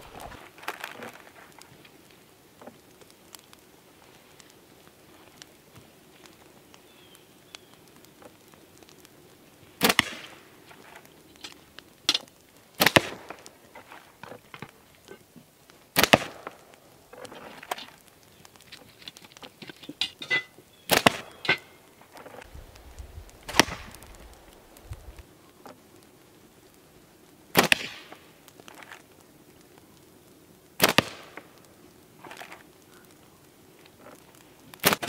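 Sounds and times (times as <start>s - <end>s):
slingshot shot cracks: 9.8s - 10.3s, 12.8s - 13.3s, 16.0s - 16.6s, 20.9s - 21.4s, 23.4s - 24.2s, 27.6s - 28.2s, 30.8s - 31.4s, 34.8s - 35.0s.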